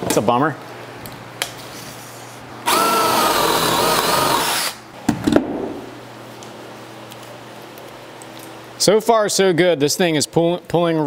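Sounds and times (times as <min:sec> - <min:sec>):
power drill boring into wood: 0:02.7 - 0:04.8.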